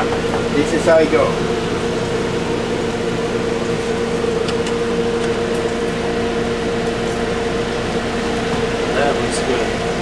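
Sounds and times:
steady mechanical hum: 0.0 - 10.0.

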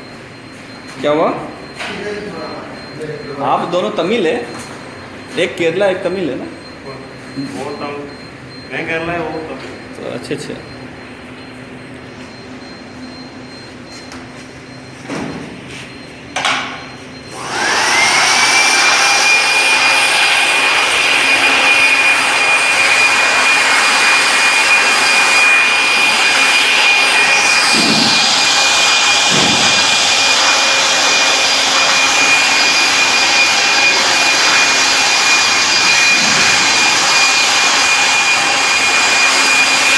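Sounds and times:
electric air blower whining: 17.3 - 39.9.

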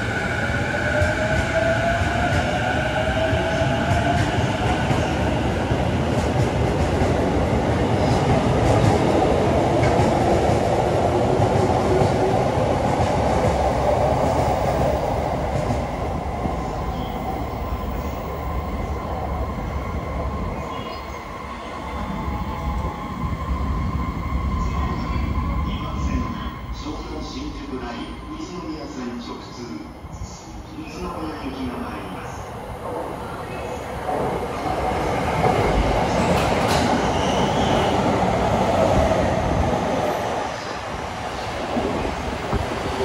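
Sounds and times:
train wheels running on rails: 34.0 - 43.0.

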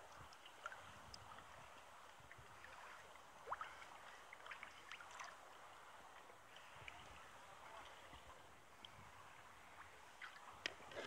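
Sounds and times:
water trickling and dripping: 0.0 - 7.0
small waves lapping against hull: 0.0 - 11.0.

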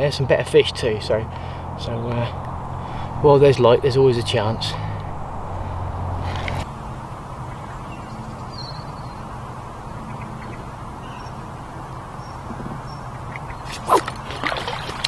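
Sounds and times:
steady low rumble: 0.0 - 8.8.

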